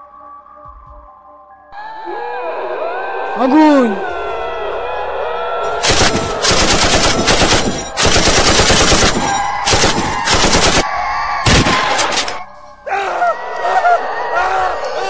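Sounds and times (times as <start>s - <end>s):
automatic gunfire bursts: 5.8s - 10.8s.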